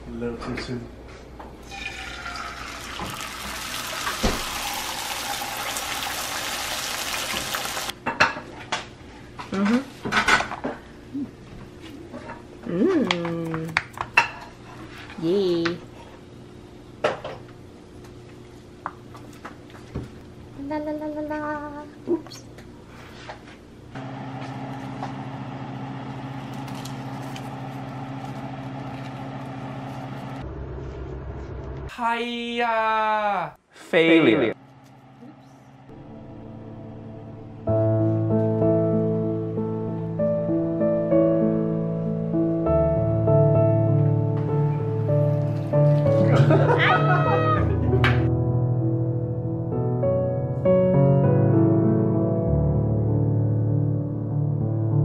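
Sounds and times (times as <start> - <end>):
egg sizzling in frying pan: 1.6 - 7.9.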